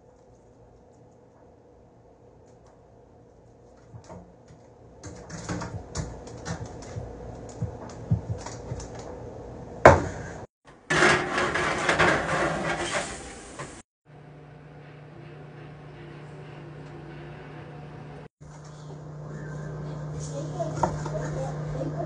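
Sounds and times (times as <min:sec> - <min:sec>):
tray scraping into oven: 0:10.9 - 0:13.8.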